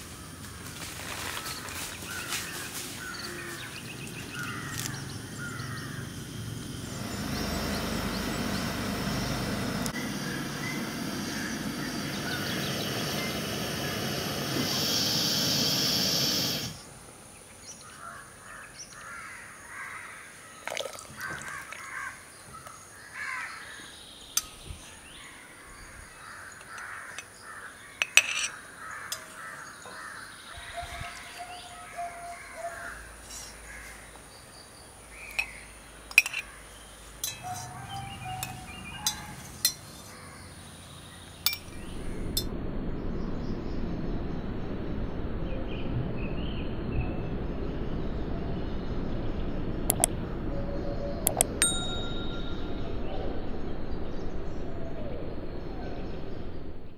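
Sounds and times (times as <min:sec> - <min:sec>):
birds calling: 0:00.0 - 0:42.5
brine boiling in a pot: 0:20.6 - 0:22.1
spoon clinking against pot and jar: 0:28.0 - 0:28.5, 0:35.3 - 0:36.5, 0:37.2 - 0:40.1, 0:41.5 - 0:41.7, 0:51.3 - 0:52.4.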